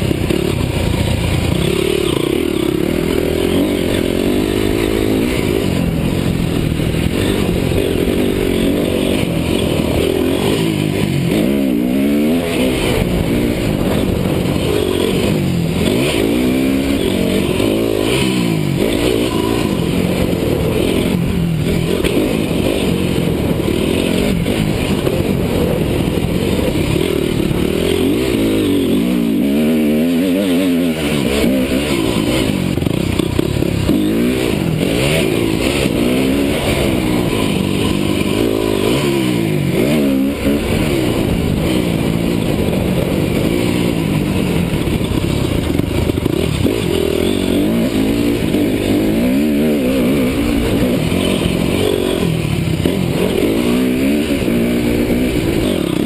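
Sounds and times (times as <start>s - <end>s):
motocross engine revving: 0.0s - 56.0s.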